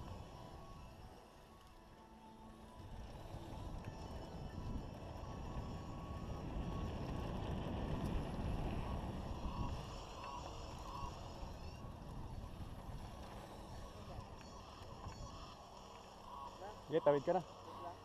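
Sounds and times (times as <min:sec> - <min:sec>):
wind buffeting microphone: 0:02.8 - 0:15.4.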